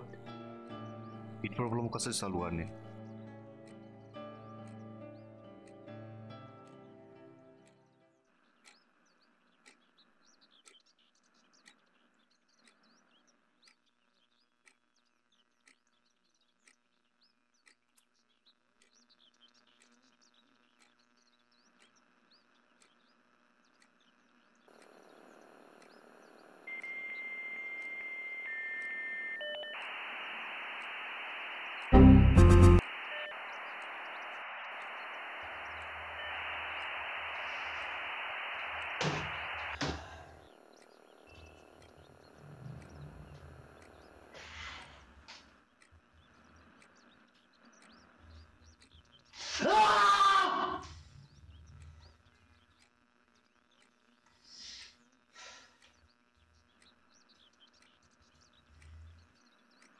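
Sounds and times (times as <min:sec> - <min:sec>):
radio static hiss: 0:00.0 - 0:00.2, 0:24.7 - 0:28.5, 0:29.6 - 0:45.5
soft ticking: 0:00.0 - 0:29.0, 0:33.4 - 0:49.3, 0:51.1 - 0:59.9
faint bird chirps: 0:07.6 - 0:59.9.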